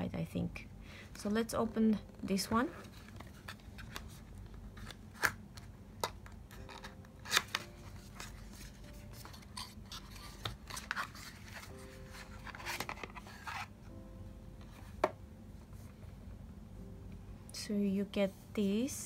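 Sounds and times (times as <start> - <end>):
cardboard scraping and rubbing: 8.0 - 13.7.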